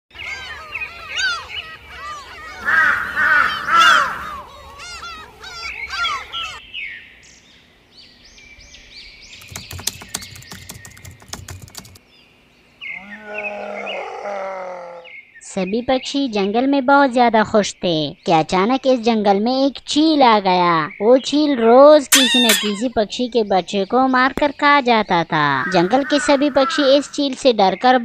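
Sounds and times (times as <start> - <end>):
high bird twittering: 0.1 - 7.0, 22.1 - 23.0
birds chirping: 0.1 - 16.6, 20.4 - 28.0
rapid clicks: 9.4 - 12.0.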